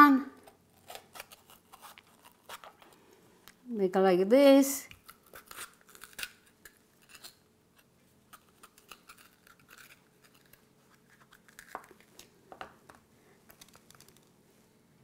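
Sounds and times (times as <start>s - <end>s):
knife scraping and snipping pepper: 4.9s - 11.9s.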